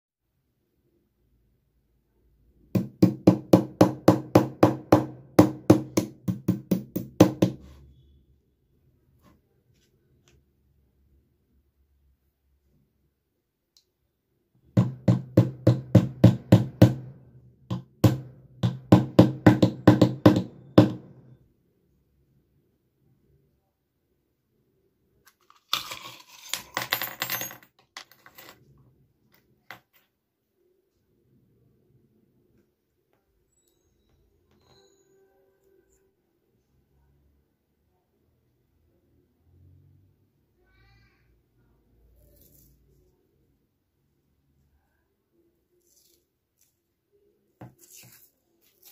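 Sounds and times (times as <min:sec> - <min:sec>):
hammer tapping on metal: 0:17.7 - 0:21.1.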